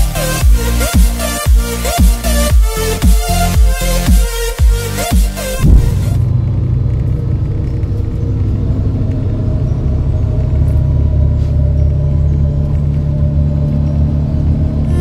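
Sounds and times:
electronic dance music: 0.0 - 6.2
vehicle rumble from inside cabin: 5.5 - 15.0.

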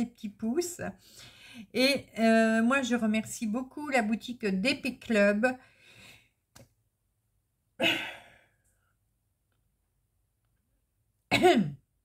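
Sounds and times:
woman sighing: 7.8 - 8.6.

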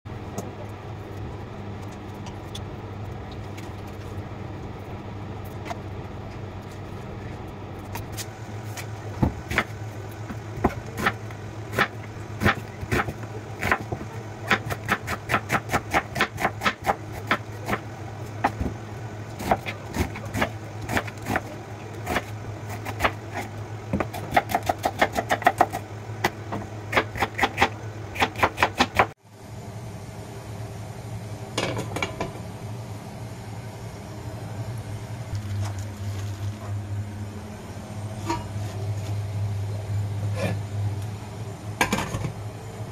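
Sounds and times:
steady low hum: 0.1 - 42.9
knife chopping on cutting board: 22.1 - 29.1.

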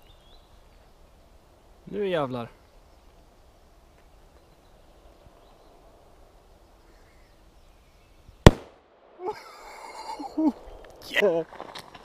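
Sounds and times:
bottle bursting bang: 8.5 - 8.8.

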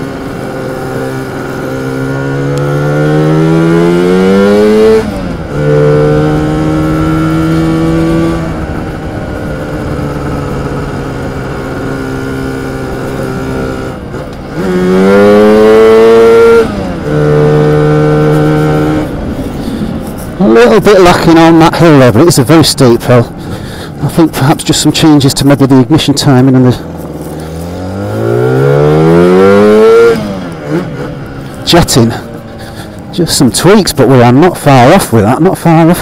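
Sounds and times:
scooter engine accelerating: 0.0 - 20.5, 26.3 - 33.8.

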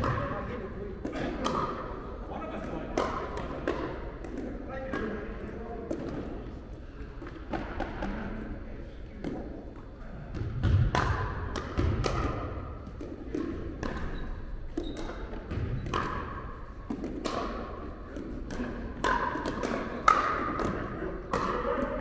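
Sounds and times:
ball bouncing on court: 0.0 - 5.2, 5.8 - 6.6, 9.2 - 22.0
paddles striking plastic ball: 2.6 - 5.2, 9.2 - 22.0.

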